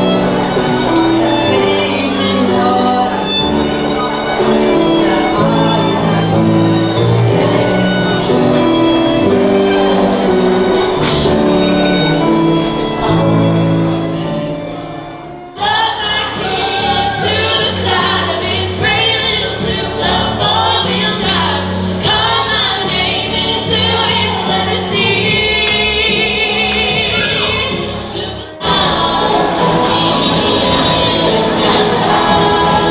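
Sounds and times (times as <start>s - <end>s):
women singing in harmony: 0.0s - 13.5s, 15.5s - 32.9s
violin playing held notes: 0.0s - 19.2s
keyboard: 0.0s - 32.9s.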